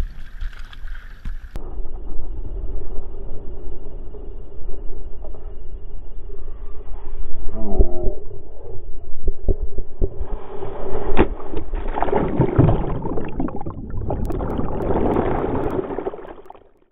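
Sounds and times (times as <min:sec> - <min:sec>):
muffled underwater churning: 0:07.8 - 0:16.9
water rushing and splashing: 0:11.8 - 0:16.8.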